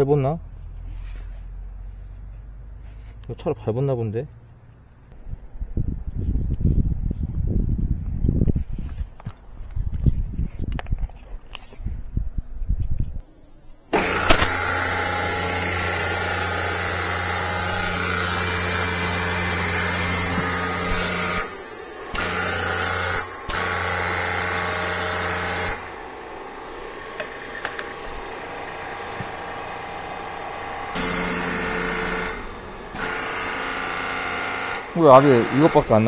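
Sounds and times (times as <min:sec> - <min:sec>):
pressure washer pump humming: 0:13.9 - 0:36.0.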